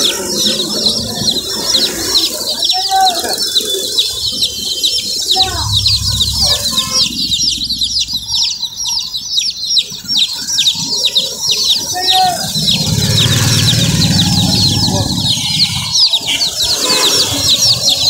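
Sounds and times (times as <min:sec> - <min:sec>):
chicks peeping: 0:00.0 - 0:18.0
low hum: 0:05.3 - 0:08.9.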